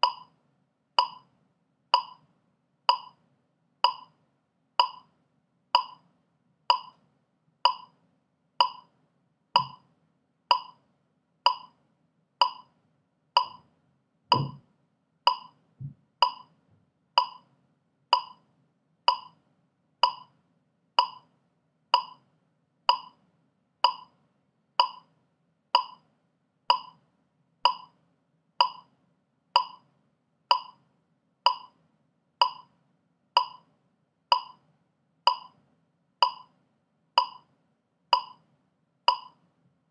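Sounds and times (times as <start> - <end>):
metronome clicking: 0.0 - 0.3, 1.0 - 1.3, 2.0 - 2.2, 2.9 - 3.2, 3.8 - 4.2, 4.8 - 5.1, 5.8 - 6.0, 6.7 - 7.0, 7.7 - 7.9, 8.6 - 8.9, 9.6 - 9.8, 10.5 - 10.8, 11.5 - 11.8, 12.4 - 12.7, 13.4 - 13.6, 14.3 - 14.6, 15.3 - 15.6, 16.2 - 16.5, 17.2 - 17.4, 18.1 - 18.4, 19.1 - 19.4, 20.0 - 20.3, 21.0 - 21.3, 22.0 - 22.2, 22.9 - 23.2, 23.8 - 24.2, 24.8 - 25.1, 25.8 - 26.0, 26.7 - 27.0, 27.6 - 27.9, 28.6 - 28.9, 29.6 - 29.8, 30.5 - 30.8, 31.5 - 31.8, 32.4 - 32.7, 33.4 - 33.7, 34.3 - 34.6, 35.3 - 35.6, 36.2 - 36.5, 37.2 - 37.5, 38.2 - 38.4, 39.1 - 39.4
faint low thumps: 14.3 - 14.6.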